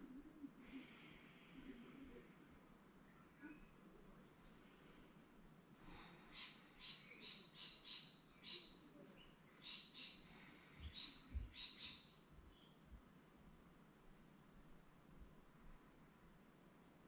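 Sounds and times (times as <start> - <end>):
faint scratchy bird calls: 6.0 - 12.8.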